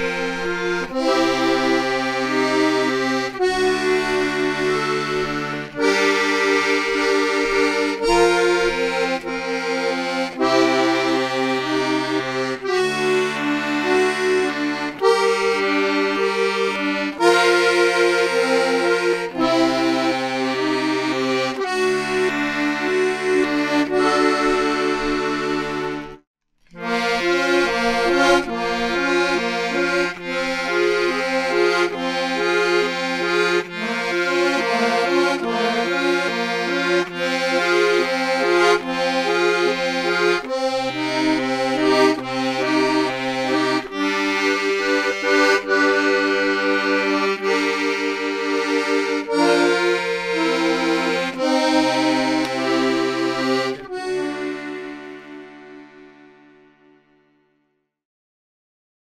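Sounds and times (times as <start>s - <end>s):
accordion music: 0.0s - 57.4s.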